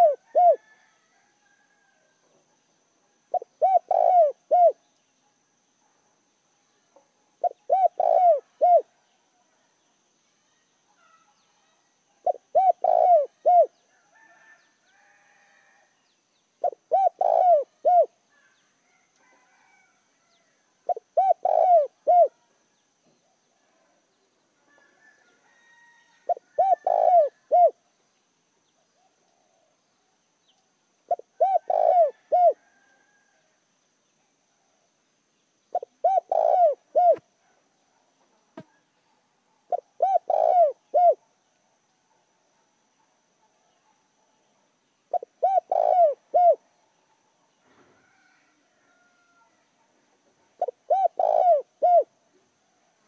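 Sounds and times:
dove cooing: 0.0 - 0.8, 3.3 - 4.8, 7.4 - 9.0, 12.2 - 13.8, 16.6 - 18.5, 20.8 - 22.4, 26.3 - 27.8, 31.1 - 32.8, 35.7 - 37.6, 39.7 - 41.3, 45.1 - 46.6, 50.6 - 52.2
faint bird chirps: 2.2 - 33.4, 34.0 - 53.0.

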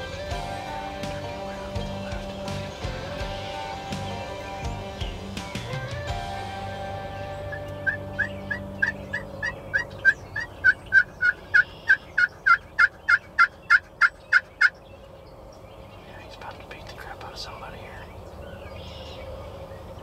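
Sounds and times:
turkey yelping: 0.0 - 14.8.

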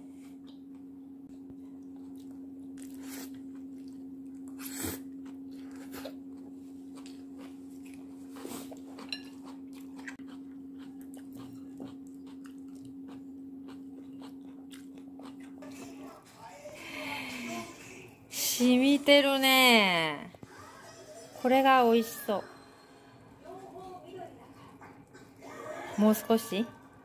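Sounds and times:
steady low hum: 0.0 - 20.6
chewing: 1.7 - 16.2.

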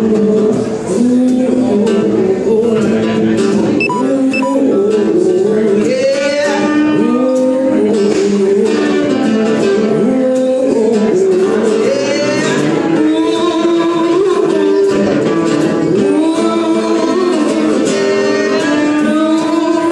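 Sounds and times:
acoustic guitar: 0.0 - 19.9
man singing: 9.8 - 15.1, 15.9 - 19.9.

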